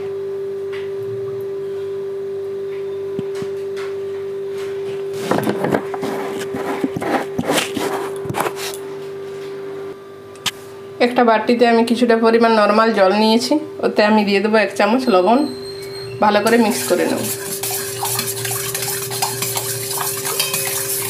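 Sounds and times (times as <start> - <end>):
steady hum: 3.2 - 15.0, 16.2 - 21.0
kitchen utensils clattering: 16.4 - 21.0.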